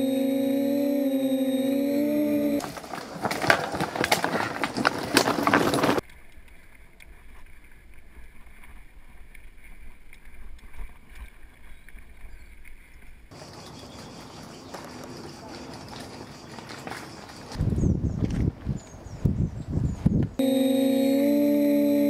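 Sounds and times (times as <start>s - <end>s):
mountain bike rattling over stones: 2.6s - 17.6s
wind rumble on microphone: 17.5s - 20.4s.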